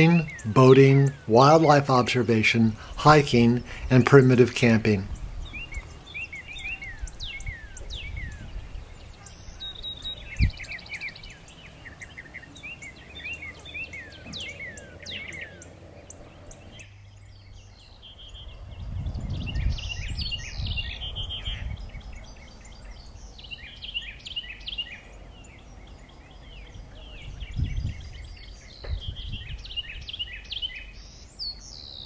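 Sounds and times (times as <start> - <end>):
birds chirping: 0.0 - 32.0
low thump: 28.8 - 29.2.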